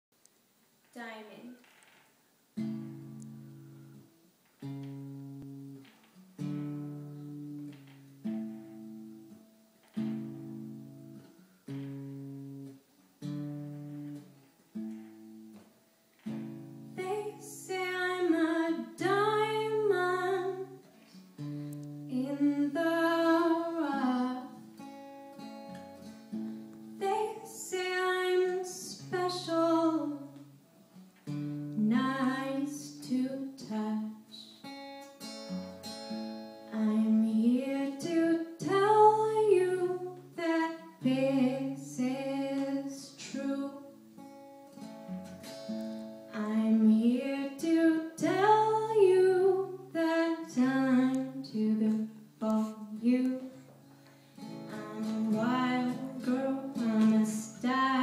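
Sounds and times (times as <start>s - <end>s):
guitar chords: 2.6s - 58.0s
woman singing: 17.0s - 20.9s, 22.0s - 24.7s, 27.0s - 30.5s, 31.7s - 34.7s, 36.7s - 44.0s, 46.3s - 53.7s, 54.5s - 58.0s.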